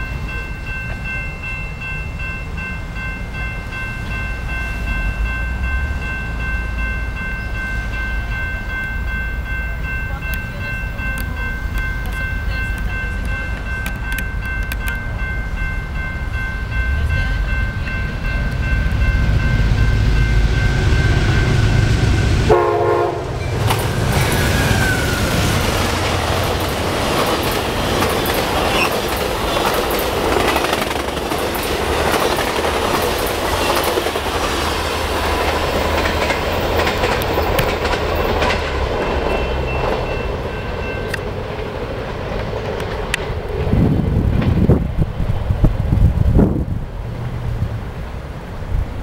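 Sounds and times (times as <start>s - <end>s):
locomotive engine rumble: 0.0s - 49.0s
train wheels clickety-clack: 10.1s - 15.3s, 23.5s - 46.1s
train horn: 20.6s - 25.6s.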